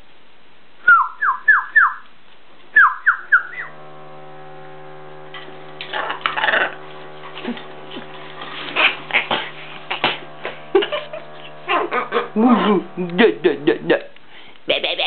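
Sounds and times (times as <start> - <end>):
steady hum: 0.0 - 15.0
macaw whistled calls: 0.9 - 2.0, 2.8 - 3.8.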